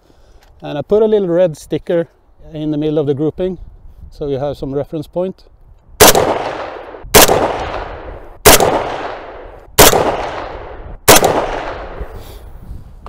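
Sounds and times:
rifle shots echoing: 6.0 - 12.2.

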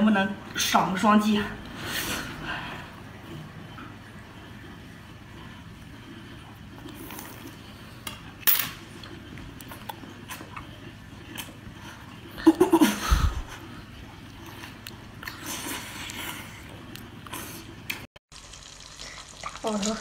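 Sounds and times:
slurping and chewing: 6.4 - 8.0, 8.9 - 12.4, 13.6 - 18.1.

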